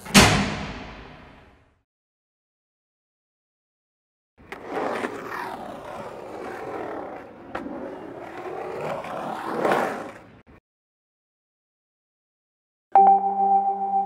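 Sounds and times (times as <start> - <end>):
skateboard wheels rolling: 4.4 - 10.6.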